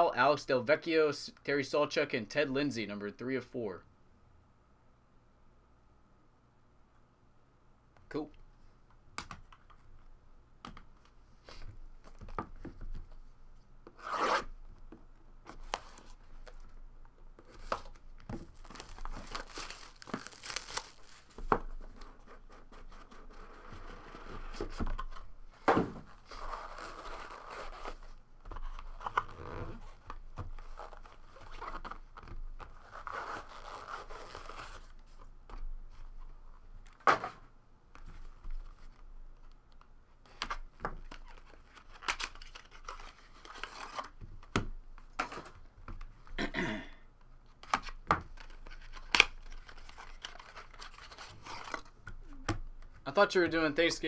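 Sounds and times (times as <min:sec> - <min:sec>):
plastic shrink wrap crinkling: 0:17.6 - 0:21.4.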